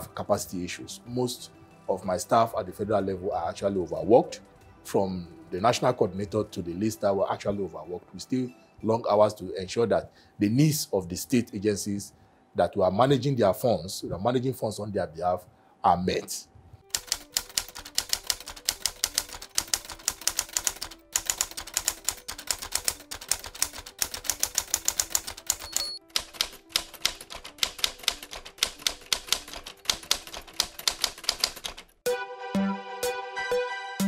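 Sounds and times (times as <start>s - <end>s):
faint background music: 0.0s - 32.1s
typewriter key clacks: 16.9s - 31.9s.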